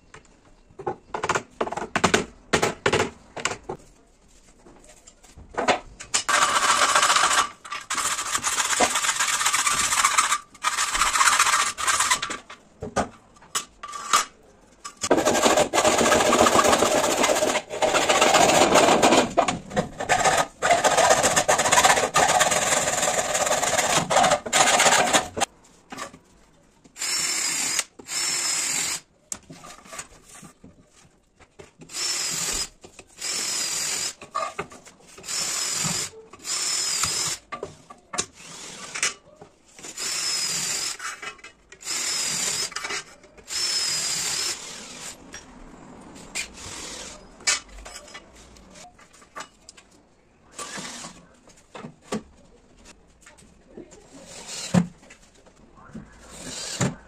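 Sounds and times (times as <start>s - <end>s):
cordless drill drilling: 27.0s - 29.0s, 31.9s - 34.2s, 35.2s - 37.4s, 40.0s - 41.0s, 41.8s - 42.8s, 43.5s - 45.2s.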